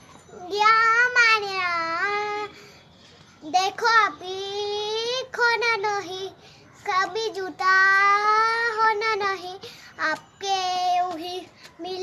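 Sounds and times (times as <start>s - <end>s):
girl singing unaccompanied: 0.3s - 2.8s, 3.4s - 12.0s.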